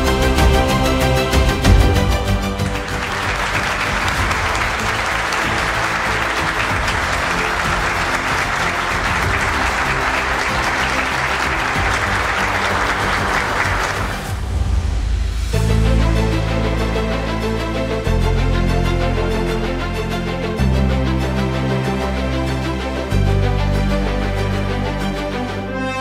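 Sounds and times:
music: 0.0 - 26.0
audience applauding: 1.4 - 14.6.

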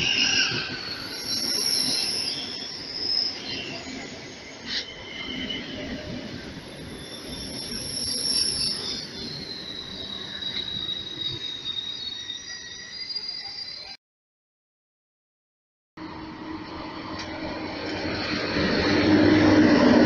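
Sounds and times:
high wheel squeal: 0.0 - 14.0.

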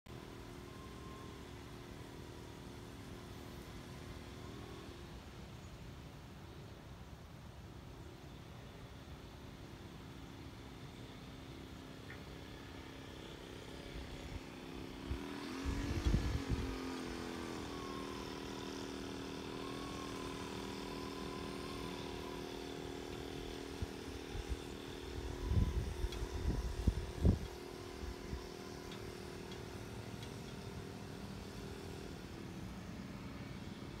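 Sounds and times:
small engine running: 0.1 - 34.0
wind gusts buffeting microphone: 15.5 - 16.8, 23.8 - 28.5.

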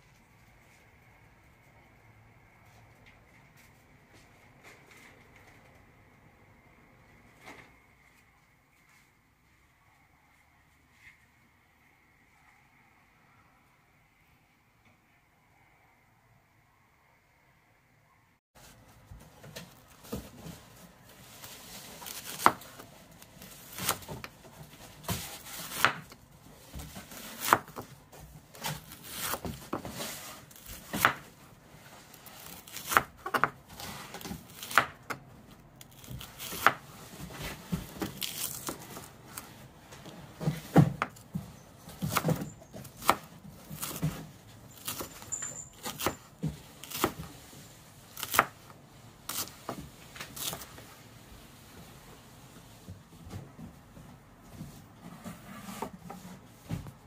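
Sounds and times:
knife chopping on wooden board: 25.6 - 26.2, 30.8 - 31.2, 35.9 - 36.8, 42.0 - 44.2, 48.2 - 48.6.

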